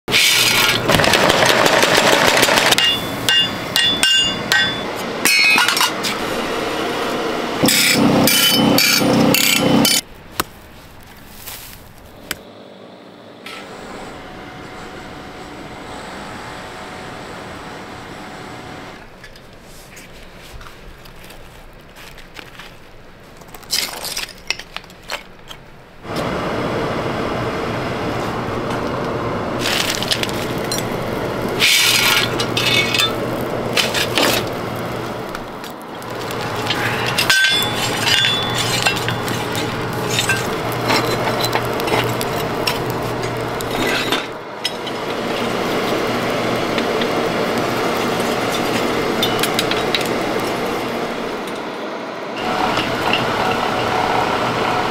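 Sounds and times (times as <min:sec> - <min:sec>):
forced air rushing through coal: 0:00.1 - 0:10.0, 0:26.0 - 0:54.9
metallic clinks in fire: 0:02.2 - 0:05.9, 0:07.6 - 0:10.0, 0:29.8 - 0:45.4, 0:46.0 - 0:50.7
low hum: 0:06.0 - 0:10.2, 0:26.0 - 0:54.9.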